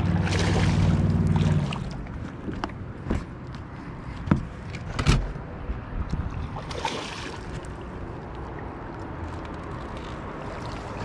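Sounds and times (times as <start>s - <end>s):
fish splashing at surface: 0.0s - 2.0s, 6.5s - 7.7s.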